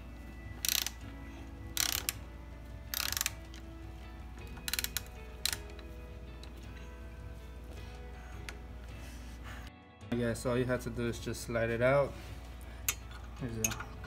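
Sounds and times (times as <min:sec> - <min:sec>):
ratchet wrench clicking: 0:00.6 - 0:01.1, 0:01.7 - 0:02.2, 0:02.9 - 0:03.6, 0:04.4 - 0:05.8.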